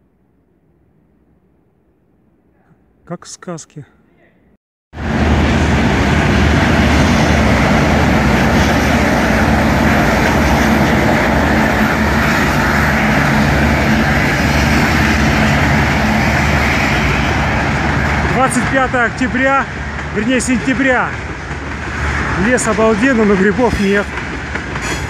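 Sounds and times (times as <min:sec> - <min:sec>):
moving train rumbling: 0:05.0 - 0:25.0.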